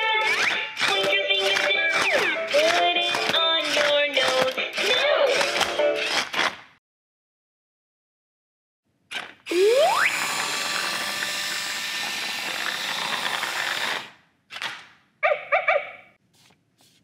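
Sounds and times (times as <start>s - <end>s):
toy motors whirring: 0.0s - 6.4s, 9.1s - 14.2s.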